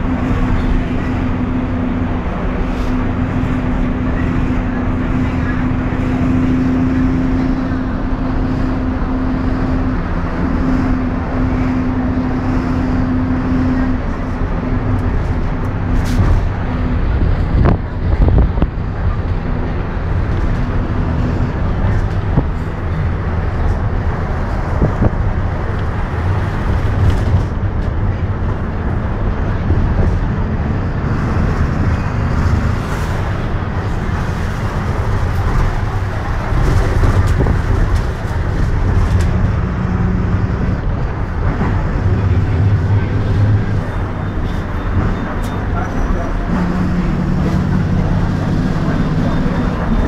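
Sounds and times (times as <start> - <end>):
bus engine humming: 0.0 - 50.0
road noise: 0.0 - 50.0
bus body knocks and rattles: 14.2 - 50.0.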